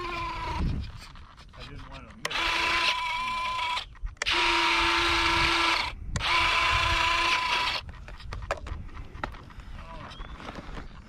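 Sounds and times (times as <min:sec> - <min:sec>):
landing gear motor whirring: 0:00.0 - 0:07.9.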